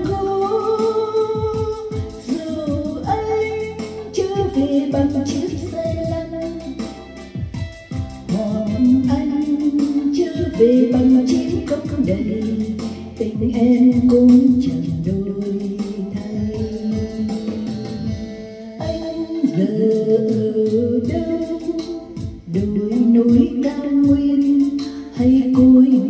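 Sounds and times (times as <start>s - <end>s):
instrumental accompaniment with beat: 0.0s - 26.0s
person singing: 0.0s - 26.0s.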